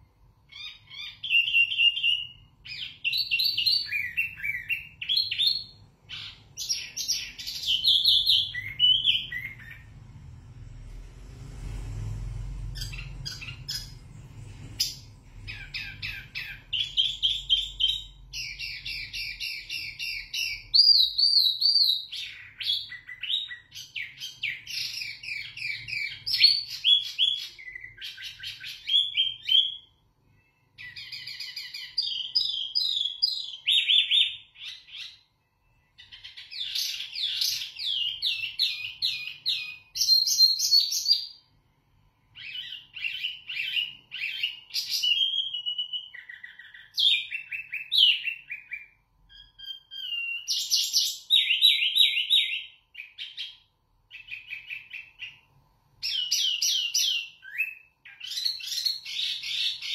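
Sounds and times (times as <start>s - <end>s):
songbird singing trills: 14.8s - 41.4s.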